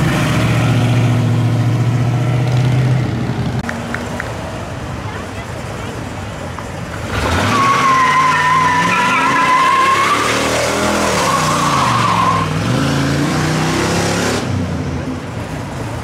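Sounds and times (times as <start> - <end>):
truck engine revving: 6.8 - 14.7
tyres squealing: 7.1 - 12.6.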